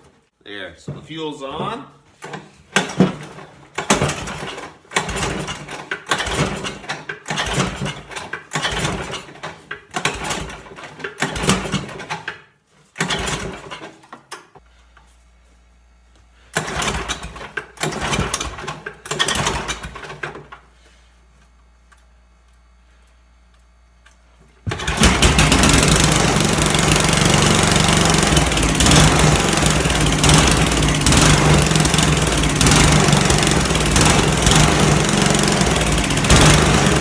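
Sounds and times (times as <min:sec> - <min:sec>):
recoil pull-starter cranking engine: 0:02.2 - 0:12.4, 0:13.0 - 0:14.1, 0:16.5 - 0:20.6, 0:24.7 - 0:37.0.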